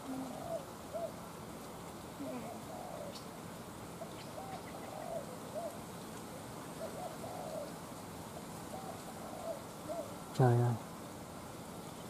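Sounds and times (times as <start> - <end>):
dove cooing: 0.0 - 1.3, 2.2 - 3.4, 4.0 - 10.3.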